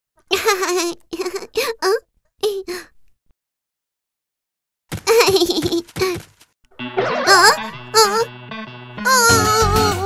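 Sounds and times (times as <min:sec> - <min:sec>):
childlike cartoon voice: 0:07.2 - 0:08.3, 0:09.0 - 0:10.0.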